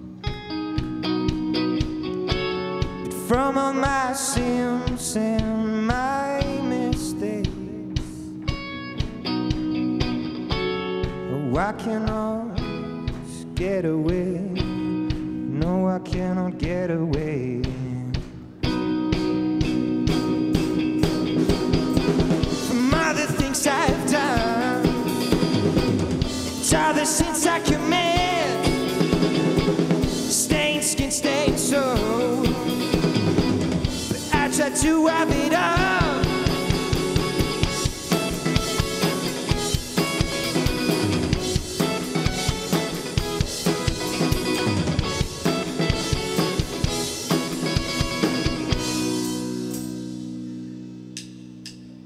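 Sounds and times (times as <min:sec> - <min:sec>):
drum kit: 0:00.0 - 0:52.0
electric guitar: 0:00.0 - 0:52.0
man singing: 0:03.0 - 0:08.4, 0:11.2 - 0:18.5, 0:22.5 - 0:25.6, 0:26.5 - 0:29.3, 0:30.2 - 0:33.3, 0:34.1 - 0:36.8.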